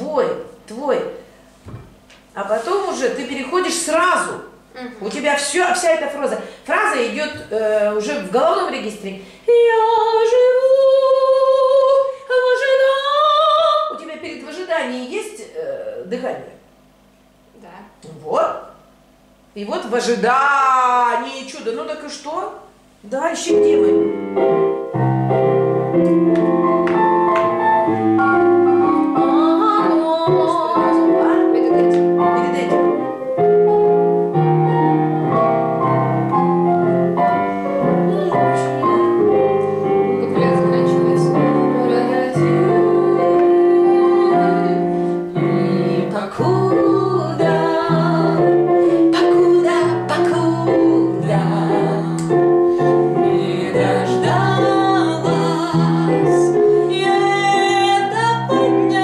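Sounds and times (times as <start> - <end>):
piano accompaniment: 23.4 - 59.0.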